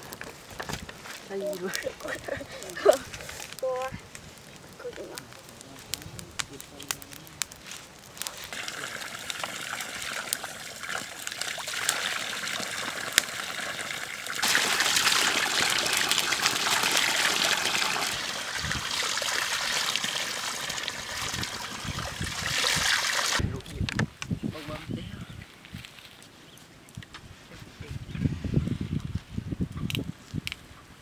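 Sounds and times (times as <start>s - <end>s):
water pouring and splashing: 8.2s - 23.4s
sharp cracks: 14.2s - 21.5s.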